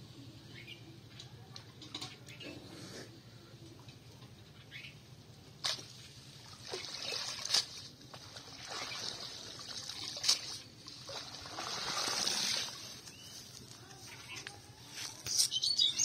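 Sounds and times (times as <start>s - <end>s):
water streaming off a net: 5.7s - 13.0s.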